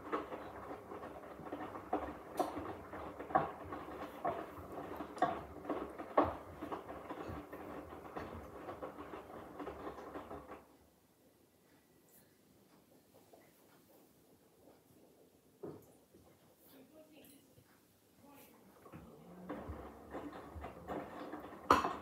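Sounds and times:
washing machine drum tumbling laundry: 0.0s - 10.8s, 18.8s - 22.0s.

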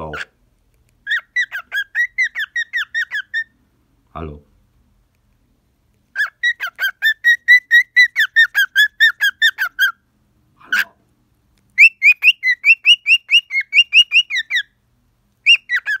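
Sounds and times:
cockatiel chirping: 0.0s - 3.6s, 6.0s - 10.0s, 11.6s - 14.8s, 15.4s - 16.0s.

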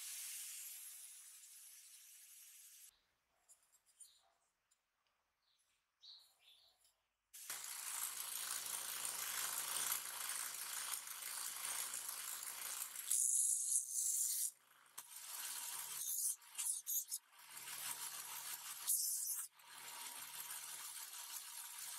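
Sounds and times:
metal part sanding hiss: 0.0s - 2.9s.

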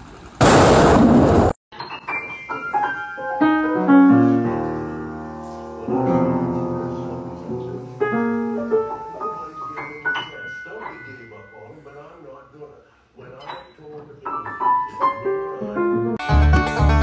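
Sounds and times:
loud burst of noise: 0.0s - 1.6s.

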